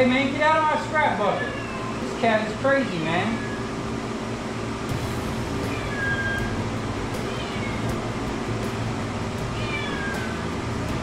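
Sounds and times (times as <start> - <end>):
cat meowing: 1.2 - 2.0, 5.7 - 6.5, 7.3 - 7.9, 9.5 - 10.4
low hum: 4.2 - 11.0.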